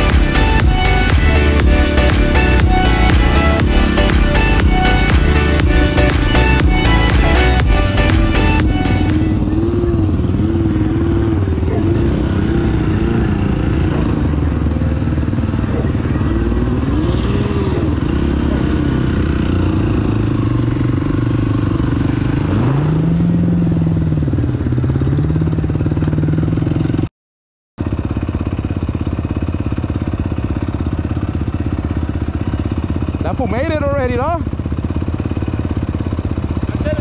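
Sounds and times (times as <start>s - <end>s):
off-road vehicle engine revving: 0.0s - 27.0s.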